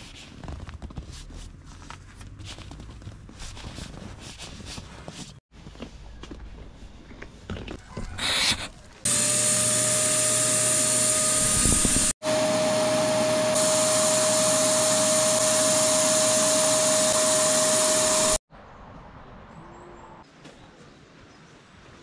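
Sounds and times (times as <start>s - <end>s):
small electric motor whirring: 9.1s - 18.4s.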